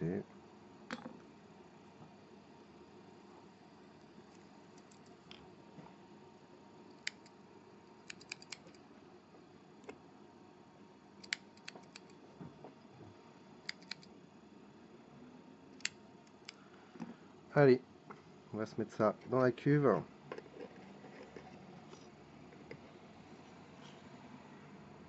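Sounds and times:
small scissors snipping: 0:07.0 - 0:07.3, 0:08.0 - 0:08.8, 0:11.2 - 0:12.2, 0:13.7 - 0:14.1.

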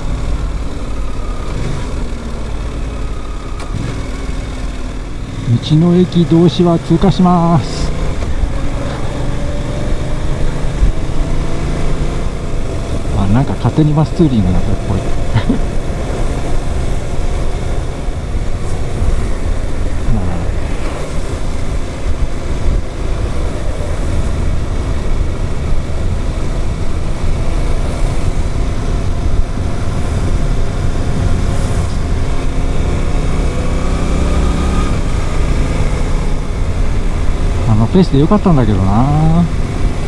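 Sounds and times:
motorcycle engine riding: 0:00.0 - 0:40.0
wind rush on microphone: 0:15.7 - 0:34.0.

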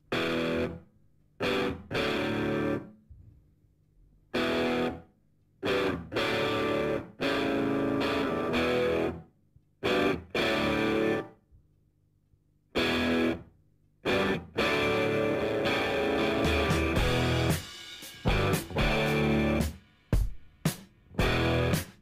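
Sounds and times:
distorted electric guitar chords: 0:00.1 - 0:00.8, 0:01.4 - 0:02.9, 0:04.3 - 0:05.0, 0:05.6 - 0:09.2, 0:09.8 - 0:11.3, 0:12.8 - 0:13.4, 0:14.0 - 0:19.7, 0:21.2 - 0:22.0.

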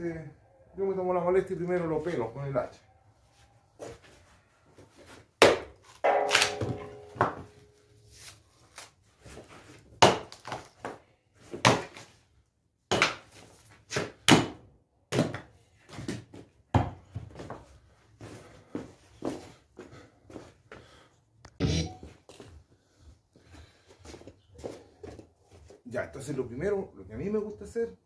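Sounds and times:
axe chopping bark: 0:05.4 - 0:07.3, 0:10.0 - 0:10.6.

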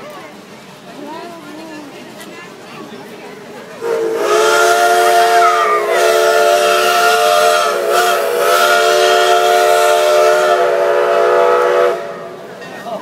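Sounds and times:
steam hissing: 0:00.4 - 0:13.0
steam locomotive chime whistle: 0:03.8 - 0:12.5.

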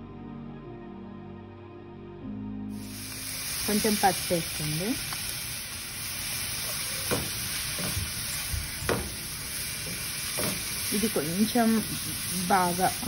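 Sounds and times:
onions sizzling in hot oil: 0:02.7 - 0:13.0.

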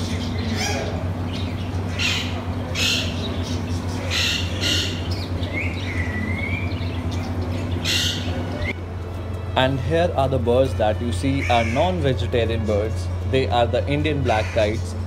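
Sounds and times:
parakeets squawking: 0:00.0 - 0:08.8, 0:09.6 - 0:15.0
steady low hum: 0:00.0 - 0:15.0
whistled bird call: 0:04.0 - 0:07.0.

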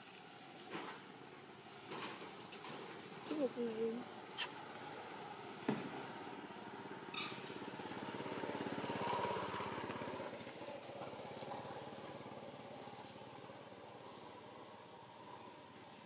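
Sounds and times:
small engine running: 0:04.8 - 0:15.6.

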